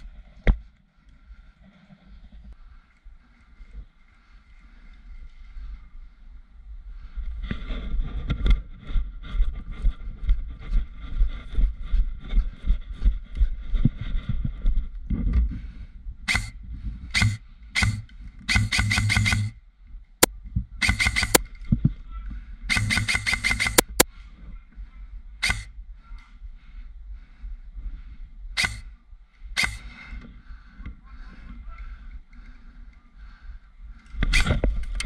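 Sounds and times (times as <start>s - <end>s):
wind rumble on camera: 4.9s - 18.6s, 19.8s - 22.8s
airsoft rifle bursts: 16.3s - 16.5s, 17.2s - 19.6s, 20.8s - 21.4s, 22.7s - 24.0s, 25.4s - 25.7s, 28.6s - 28.9s, 29.6s - 29.9s.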